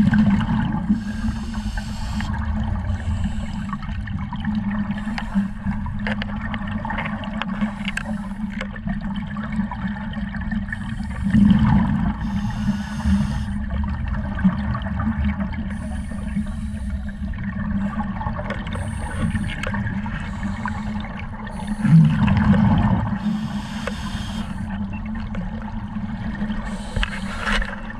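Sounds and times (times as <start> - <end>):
exhaled bubbles gurgling: 0.0 - 27.9
muffled water noise: 0.0 - 27.9
scuba regulator hisses: 23.2 - 24.6.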